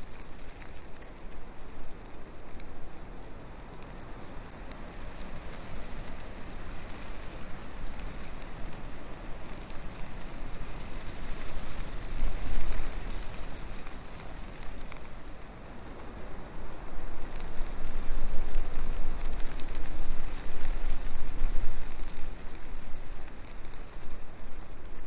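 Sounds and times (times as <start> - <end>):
wind noise on microphone: 16.0 - 25.0.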